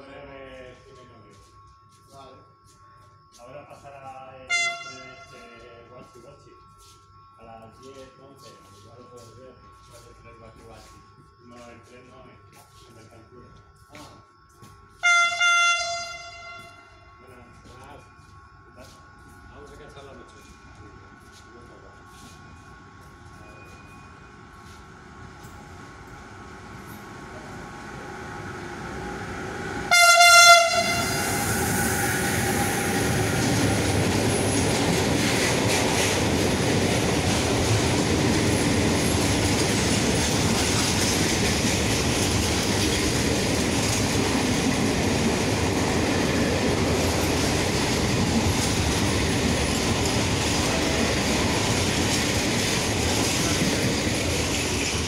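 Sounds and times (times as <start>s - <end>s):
locomotive horn blast: 4.5s - 5.6s, 15.0s - 17.2s, 29.8s - 31.7s
freight train passing: 14.0s - 55.0s
wheels rumbling on rail: 19.4s - 55.0s.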